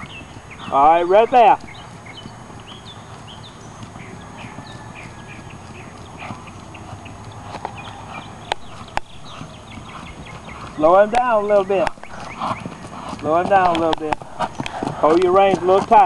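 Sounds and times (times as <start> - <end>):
hoofbeats on grass: 0.0 - 16.0
sharp clicks: 8.4 - 9.2.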